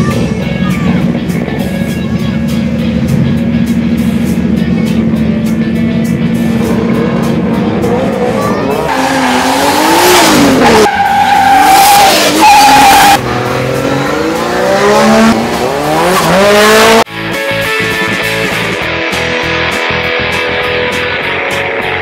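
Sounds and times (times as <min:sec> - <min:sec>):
guitar music: 0:00.0 - 0:10.9, 0:13.1 - 0:22.0
car engine revving: 0:00.4 - 0:17.1
tyre squeal: 0:08.8 - 0:13.2.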